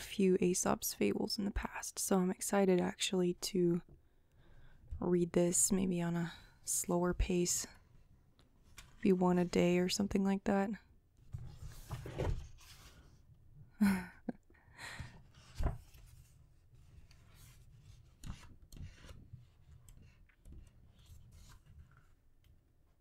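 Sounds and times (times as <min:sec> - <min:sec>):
book pages turning: 0:11.3 - 0:13.2, 0:15.3 - 0:22.6.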